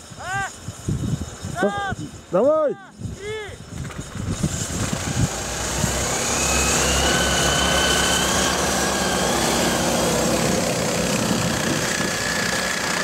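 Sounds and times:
small engines revving high: 0:03.7 - 0:13.0.

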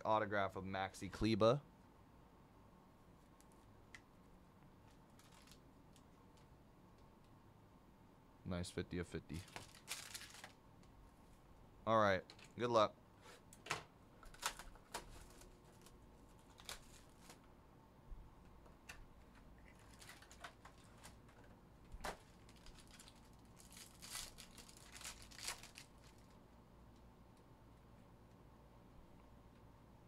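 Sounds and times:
foil pack tearing and crinkling: 0:05.2 - 0:05.6, 0:09.3 - 0:10.6, 0:14.3 - 0:17.4, 0:19.7 - 0:21.2, 0:22.0 - 0:26.3.

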